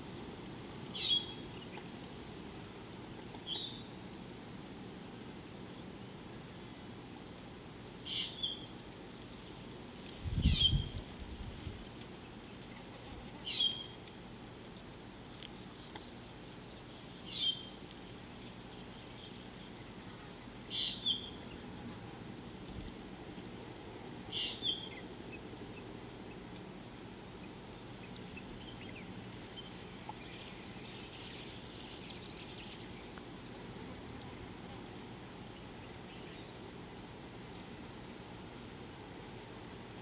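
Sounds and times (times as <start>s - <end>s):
low background hiss: 0.0s - 40.0s
bird calling: 0.9s - 1.9s, 8.0s - 8.7s, 24.2s - 26.6s.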